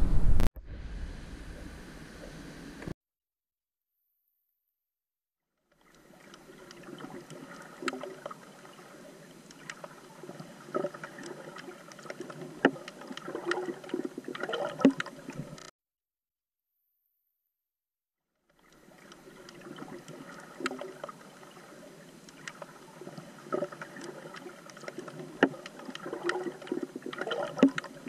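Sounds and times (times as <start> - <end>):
water sloshing and gurgling: 5.7 - 15.7, 18.5 - 28.0.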